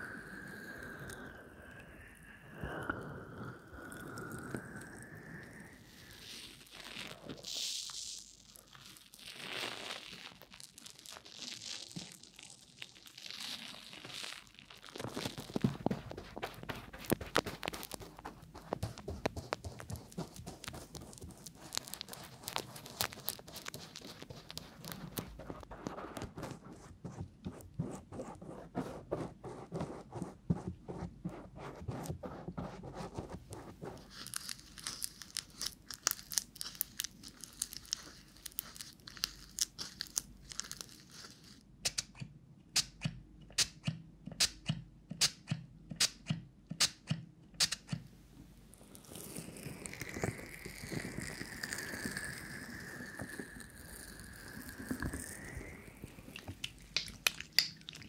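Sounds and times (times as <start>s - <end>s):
brush crackling over microphone: 5.9s - 28.9s, 31.3s - 41.6s, 48.7s - 58.0s
hands rubbing over microphone: 15.1s - 35.1s
stirring in a bowl with clicks: 53.1s - 58.0s.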